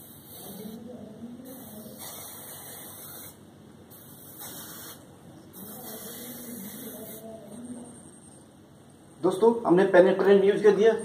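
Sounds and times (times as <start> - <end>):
aerosol can spraying: 0.0 - 0.8, 1.4 - 5.0, 5.6 - 7.2.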